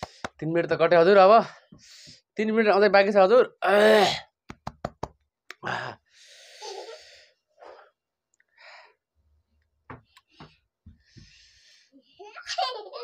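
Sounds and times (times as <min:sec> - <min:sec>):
man sighing: 0:05.6 - 0:06.0
man's hissing breaths: 0:11.0 - 0:12.0.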